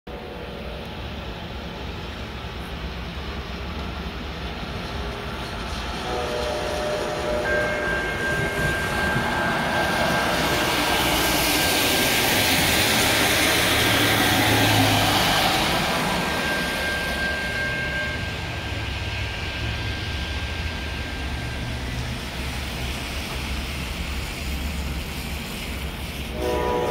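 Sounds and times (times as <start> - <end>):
passenger train passing: 0.1 - 26.9
crossing warning bell ringing: 6.0 - 22.9.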